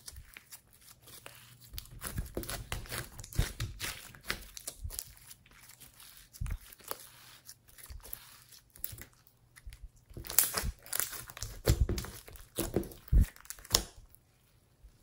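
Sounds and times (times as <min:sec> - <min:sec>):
sticky slime crackles and pops: 0:01.7 - 0:05.3, 0:08.8 - 0:14.2.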